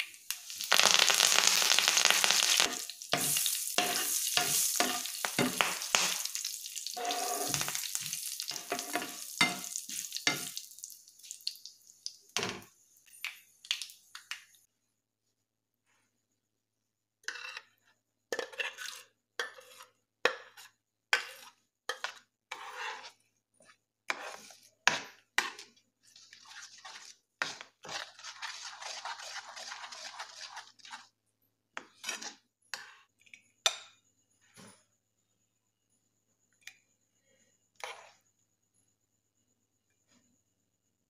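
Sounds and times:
spoon scraping and stirring in pan: 0.1s - 13.6s, 17.2s - 34.7s, 37.7s - 38.4s
spoon clinking on pan: 8.5s - 10.6s.

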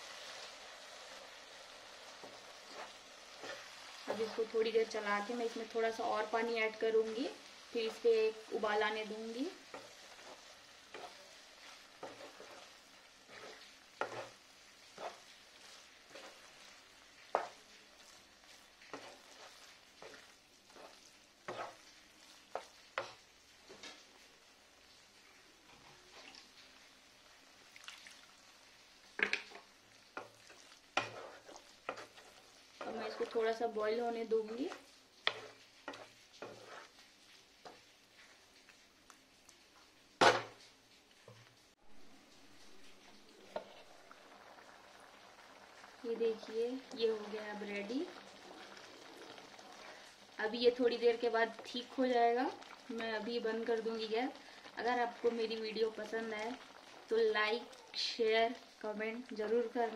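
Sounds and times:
faint frying sizzle: 0.0s - 59.9s
wooden spatula scraping pan: 2.1s - 24.2s, 29.1s - 38.8s.

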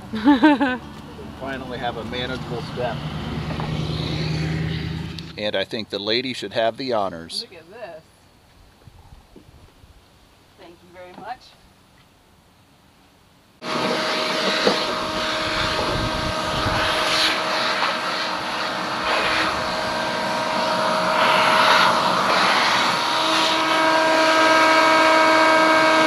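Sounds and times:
hose sucking up sawdust: 13.6s - 26.0s
vacuum cleaner motor whine: 13.6s - 26.0s.

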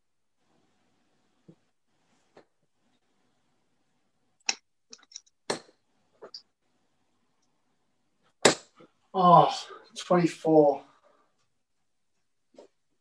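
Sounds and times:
darts thudding into dartboard: 8.4s - 8.8s.

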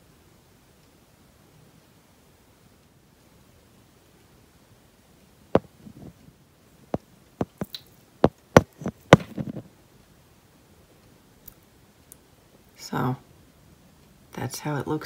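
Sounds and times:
phone clicking and knocking: 5.6s - 6.0s, 7.4s - 9.7s
soft rustling: 5.6s - 9.8s.

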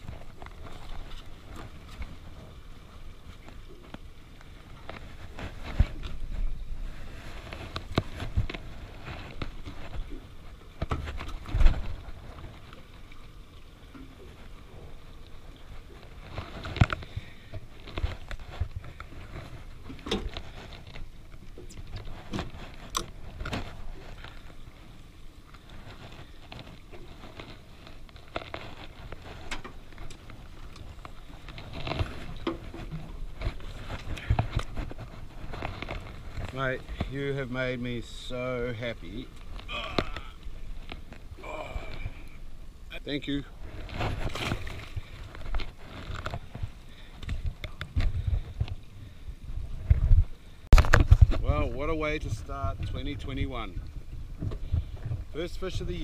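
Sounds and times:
rustling handling noise: 25.6s - 41.4s.

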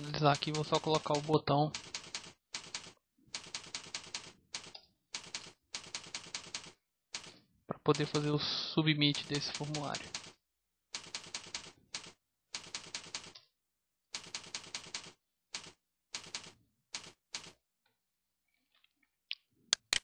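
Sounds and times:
keyboard typing: 0.0s - 8.3s, 9.0s - 10.4s, 11.0s - 13.5s, 14.2s - 17.6s.

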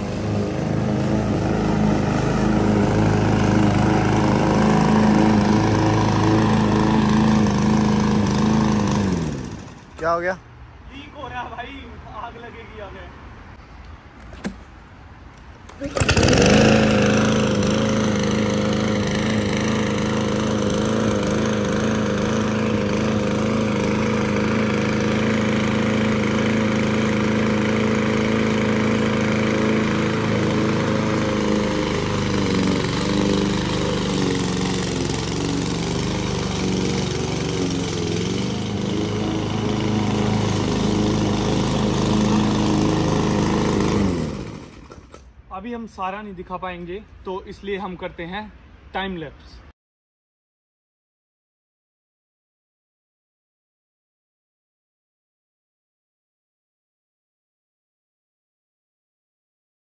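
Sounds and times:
lawn mower engine running: 0.0s - 10.2s, 15.3s - 45.4s.

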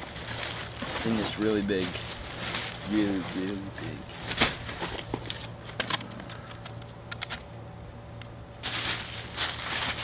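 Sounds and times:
packing rustling: 0.0s - 6.0s, 8.6s - 10.0s.

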